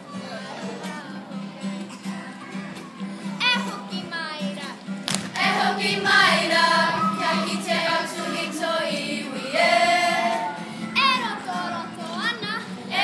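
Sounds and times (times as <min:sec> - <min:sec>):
children singing in unison: 0:05.3 - 0:12.2.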